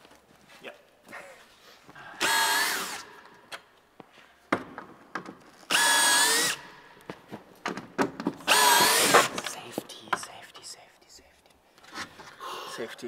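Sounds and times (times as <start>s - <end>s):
cordless drill whining: 2.2s - 3.1s, 5.7s - 6.7s, 8.5s - 9.3s.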